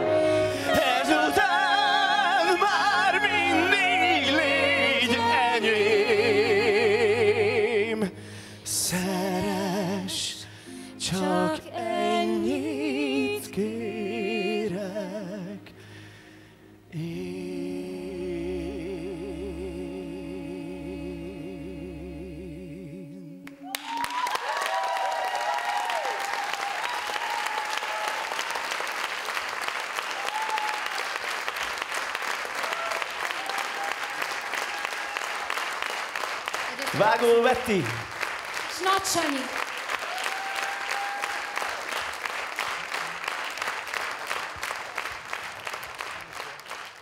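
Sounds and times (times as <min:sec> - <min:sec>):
woman and man singing duet: 0:00.2 - 0:15.7
audience applause: 0:23.5 - 0:47.0
audience shouts: 0:23.7 - 0:28.7, 0:40.0 - 0:41.8.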